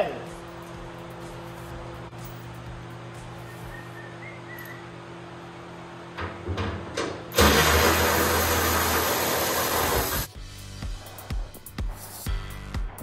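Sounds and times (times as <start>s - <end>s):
music with steady beat: 10.3s - 13.0s.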